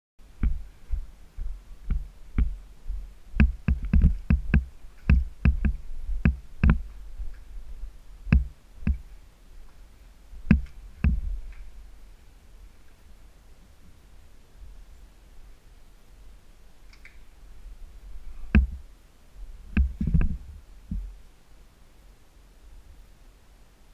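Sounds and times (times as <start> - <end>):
low bass hum: 0.2 - 12.2.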